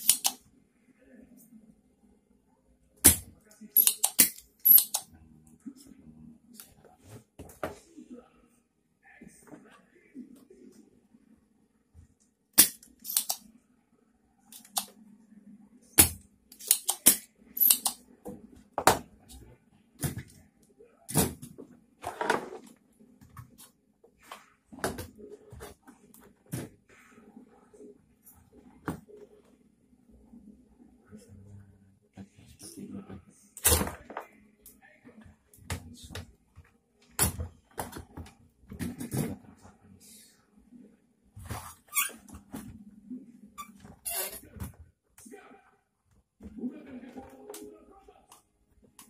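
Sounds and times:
sharp clicks and snaps of tools: 0.0 - 0.4, 12.6 - 13.4, 14.5 - 14.9, 16.5 - 18.0
faint low hum: 0.4 - 16.6.

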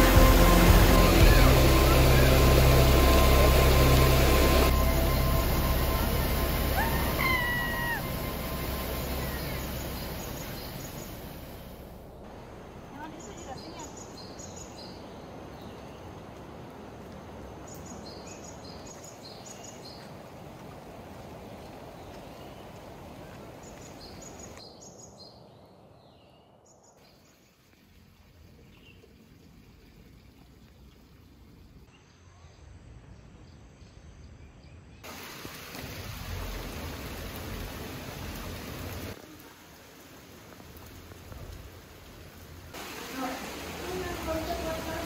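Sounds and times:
heavy rain hissing: 0.0 - 19.0, 35.0 - 45.0
steady rushing water: 0.0 - 24.6, 35.0 - 45.0
forest ambience: 0.0 - 45.0.

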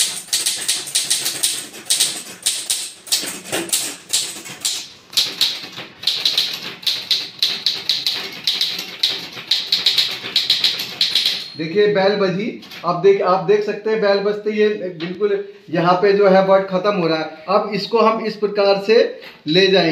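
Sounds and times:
typewriter keys striking: 0.0 - 11.6.

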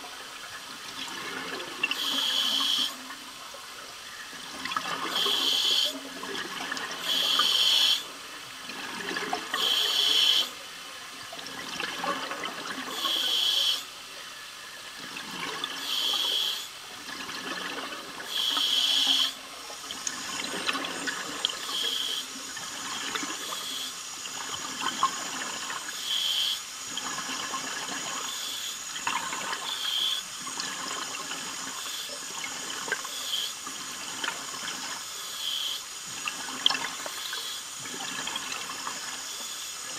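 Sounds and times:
hissing regulator inhalation: 5.1 - 6.0, 7.0 - 8.1, 9.6 - 10.5, 15.8 - 16.7, 18.3 - 19.4.

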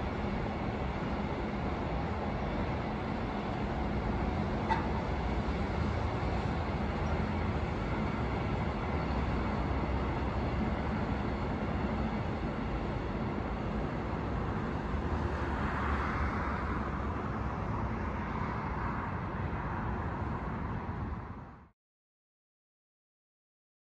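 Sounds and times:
road traffic noise: 0.0 - 21.7
train rumbling past: 0.0 - 21.7.

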